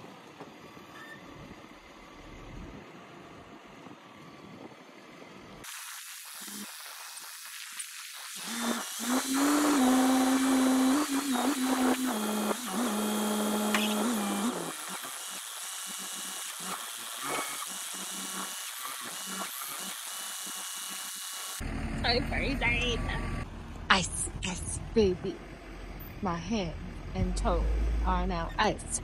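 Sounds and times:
forklift engine and hydraulic whine: 0:00.0 - 0:29.0
low hum: 0:01.3 - 0:04.7, 0:21.6 - 0:29.0.

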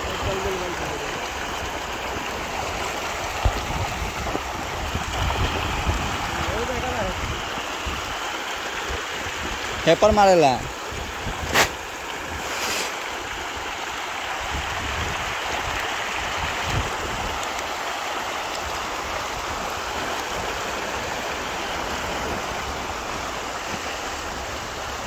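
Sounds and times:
fish splashing at pond surface: 0:11.0 - 0:25.0.

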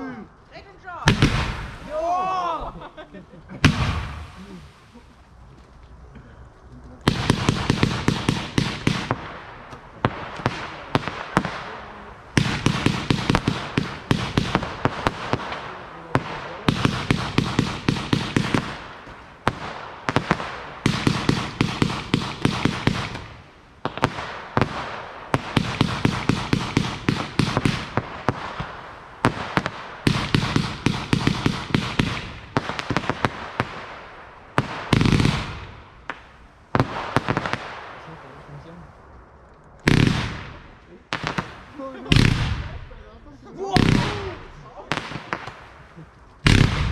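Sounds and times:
fireworks bangs and crackling: 0:00.0 - 0:46.9.

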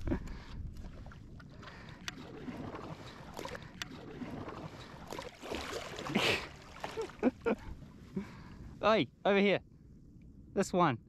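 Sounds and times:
water lapping around a kayak hull: 0:00.0 - 0:08.8
paddle splashing in water: 0:00.8 - 0:07.4.

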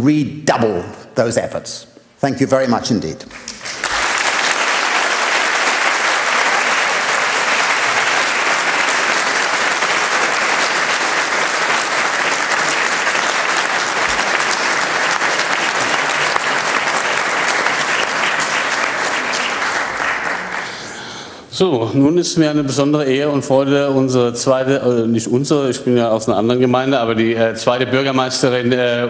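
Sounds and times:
audience applauding: 0:03.3 - 0:21.2.

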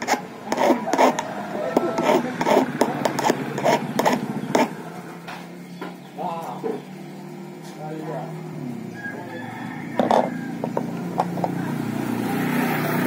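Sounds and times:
hand file rasping on metal: 0:00.0 - 0:04.8.

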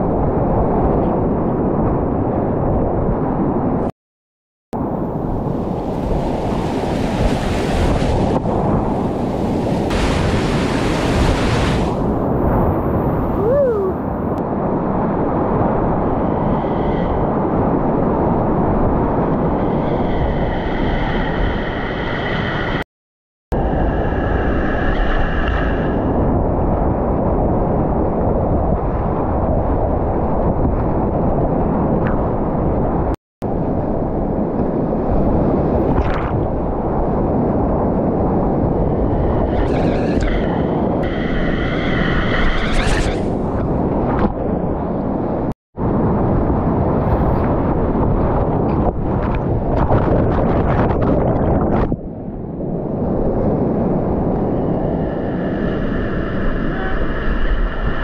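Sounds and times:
water crashing over camera: 0:06.0 - 0:12.1.

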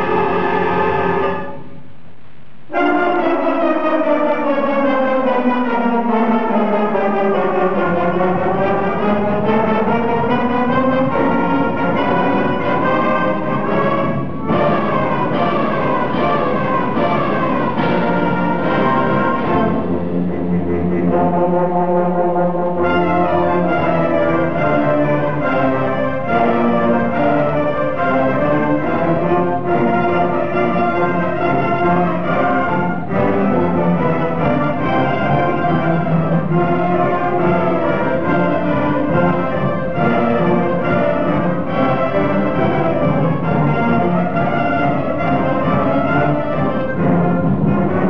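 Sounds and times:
concert band playing brass passage: 0:00.0 - 0:02.0, 0:02.6 - 0:48.0
trombones: 0:00.0 - 0:48.0.

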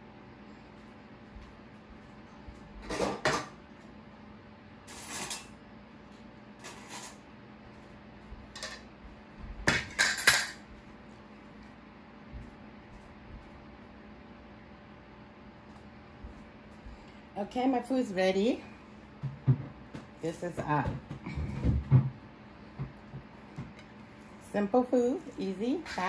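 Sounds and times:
dishes and cutlery clattering: 0:09.7 - 0:10.6.

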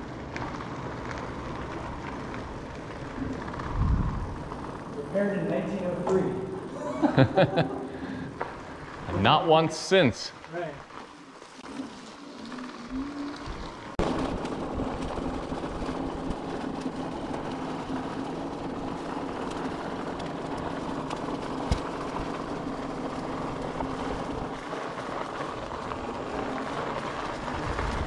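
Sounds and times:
bike tyre rumble on dirt: 0:00.0 - 0:28.0
electric motor whine: 0:11.0 - 0:28.0.

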